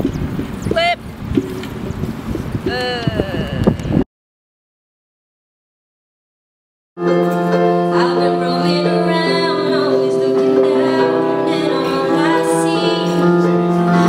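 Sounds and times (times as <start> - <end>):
electronic keyboard chords: 7.0 - 14.0
woman singing slow song: 7.8 - 14.0.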